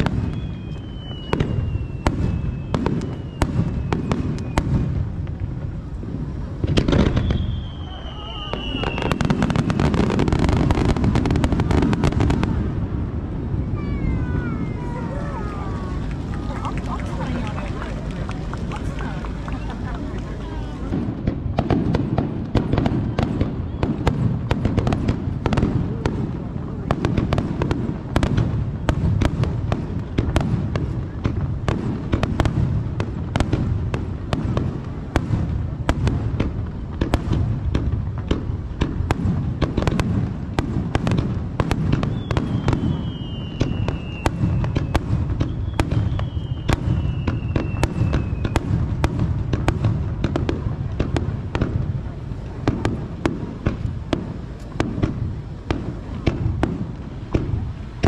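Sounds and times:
fireworks cracks and bangs: 0.0s - 58.0s
fireworks falling whistles: 0.0s - 58.0s.

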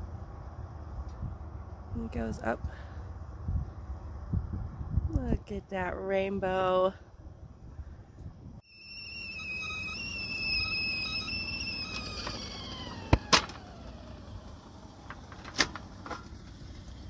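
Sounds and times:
kettle whistling: 8.6s - 14.4s.

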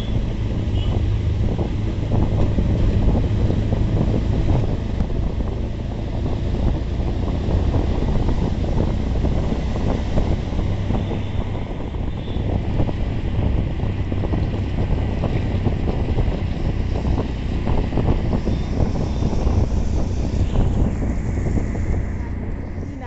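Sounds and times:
vehicle rumble on wet road: 0.0s - 23.0s
wind buffeting microphone: 0.0s - 23.0s.

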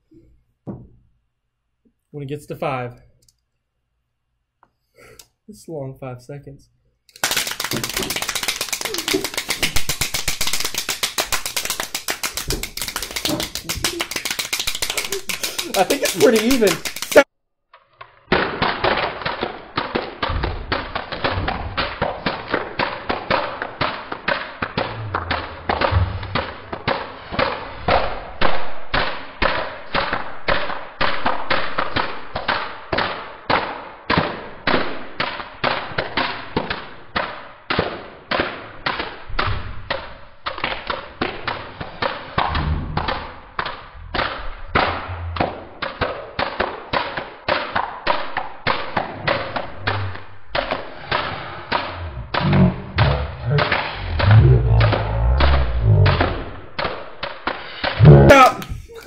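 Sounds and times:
plastic toy clappers clacking: 7.1s - 17.2s
low thumps: 24.8s - 26.4s, 42.4s - 45.9s, 49.1s - 56.8s, 58.0s - 58.9s.

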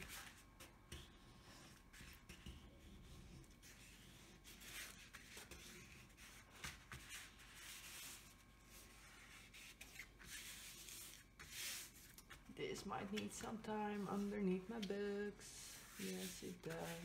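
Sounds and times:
hands rubbing across a sheet: 15.6s - 17.0s.

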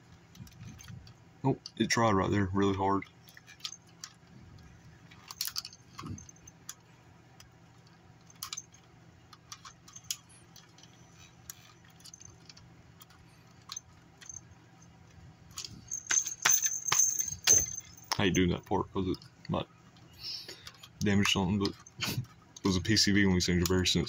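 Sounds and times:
small bells jingling: 15.6s - 18.5s.

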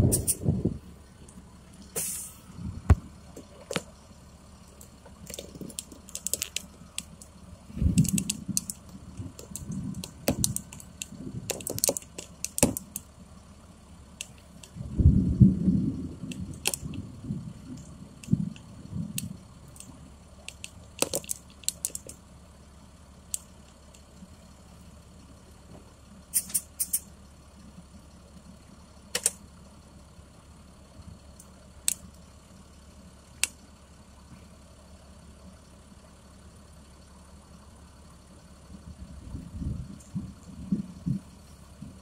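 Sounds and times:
engine idling hum: 0.0s - 42.0s
sharp clicks and taps: 7.9s - 13.1s, 18.2s - 22.2s, 29.1s - 29.4s.

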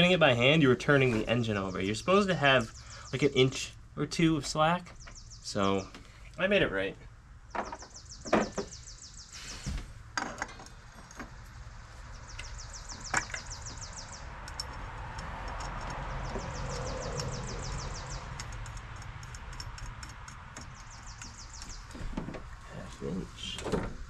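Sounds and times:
rustle: 9.3s - 12.5s
light metal clicks: 14.4s - 21.8s.

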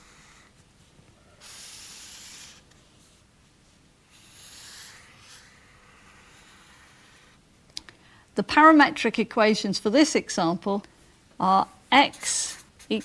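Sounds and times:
marker pen scratching paper: 0.0s - 0.7s, 1.4s - 3.2s, 4.1s - 7.4s, 11.8s - 13.0s.

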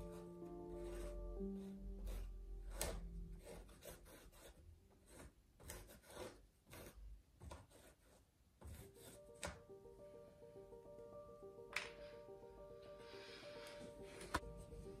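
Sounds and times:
charcoal pencil scratching canvas: 0.0s - 9.6s.

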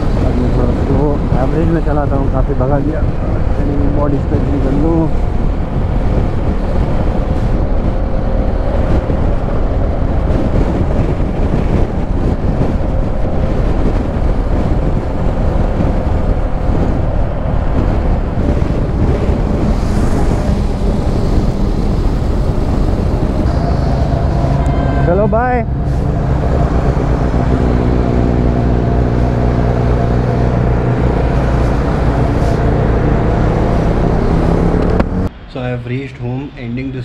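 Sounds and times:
wind buffeting microphone: 0.0s - 35.3s
road noise: 0.0s - 37.0s
motorcycle engine: 18.0s - 35.3s.

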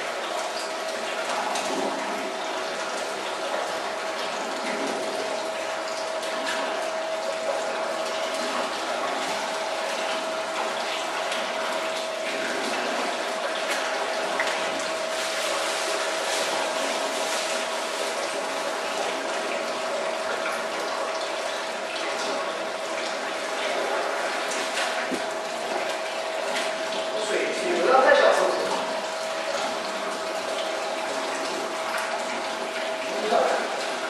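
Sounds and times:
running water: 0.0s - 34.0s.

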